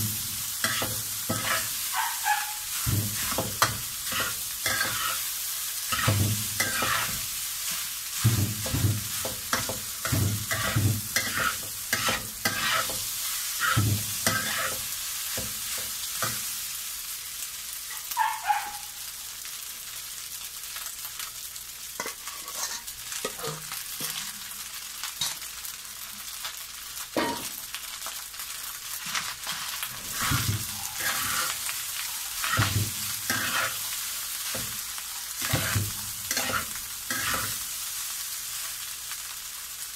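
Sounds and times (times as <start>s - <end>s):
rice sizzling in a wok: 0.0s - 39.9s
metal spatula scraping wok: 0.5s - 16.4s, 22.0s - 24.3s, 29.0s - 37.6s.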